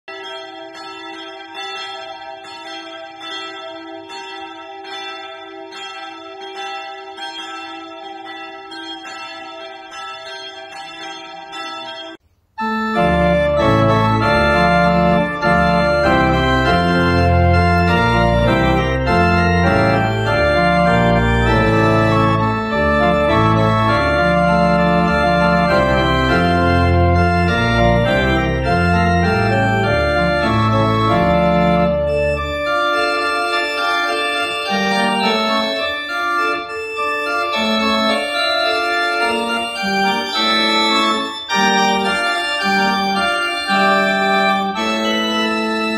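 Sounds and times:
church organ chords: 0.1 - 45.9
deep organ bass line: 12.6 - 36.6.

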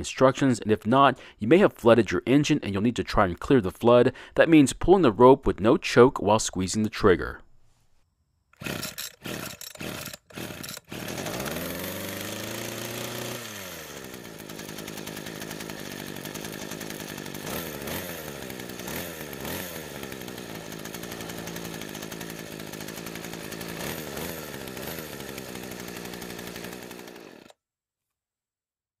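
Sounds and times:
string trimmer engine revving: 8.6 - 27.6.

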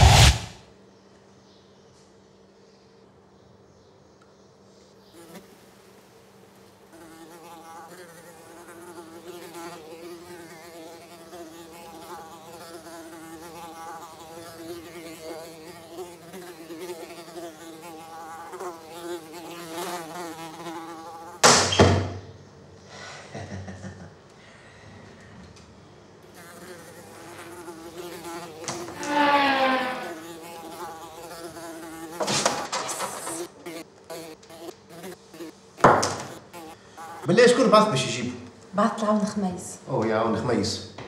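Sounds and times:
loud slaps: 0.0 - 0.6, 21.4 - 22.1, 32.2 - 33.4
fly buzzing: 5.0 - 21.7, 26.2 - 37.3.

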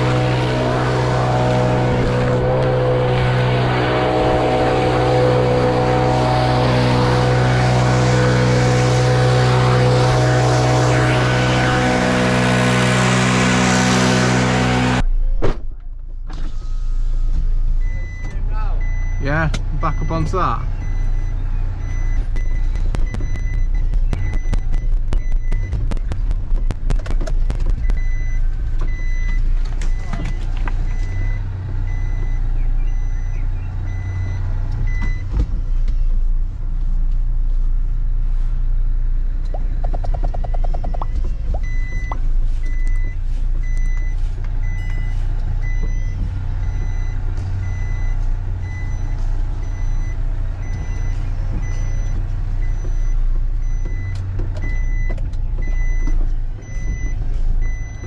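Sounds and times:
reversing alarm beeping: 0.0 - 15.0, 17.2 - 25.8, 27.8 - 35.3, 40.3 - 58.0
truck engine at low revs: 0.0 - 58.0.

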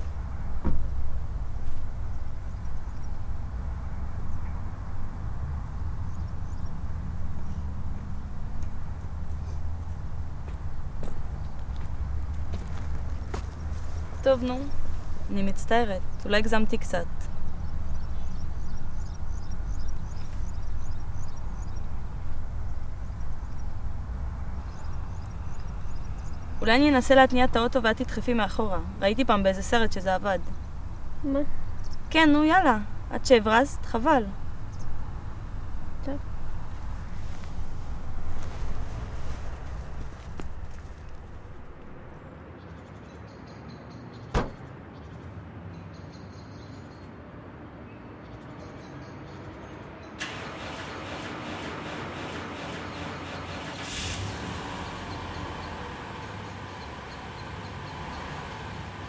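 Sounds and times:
wind buffeting microphone: 0.0 - 42.2
sharp bang from car body: 44.3 - 44.7.

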